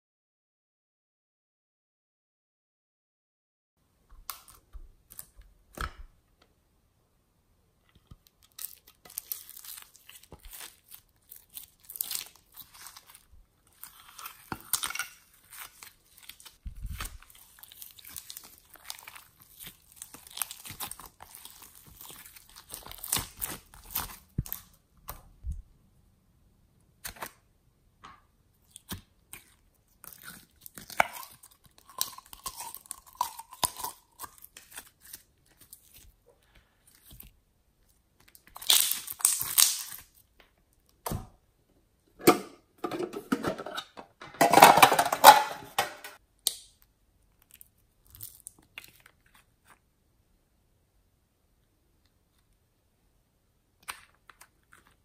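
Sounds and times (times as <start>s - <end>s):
slime squelching and popping: 8.0s - 25.6s, 36.9s - 41.2s.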